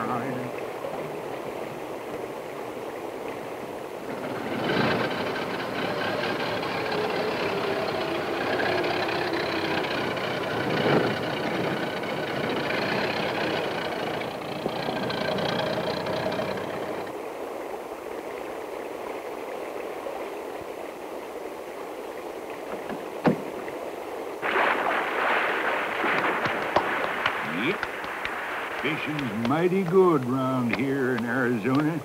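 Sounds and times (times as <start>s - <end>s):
stream water running: 0.0s - 32.0s
old car engine running: 4.0s - 17.2s, 26.2s - 32.0s
engine bang: 4.1s - 17.1s.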